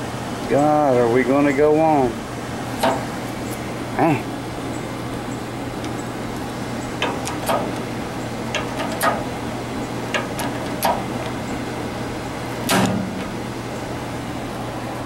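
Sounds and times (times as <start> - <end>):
low steady hum: 0.0 - 15.0
metal parts knocking and clicking: 7.0 - 7.8, 8.5 - 9.3, 10.1 - 11.1.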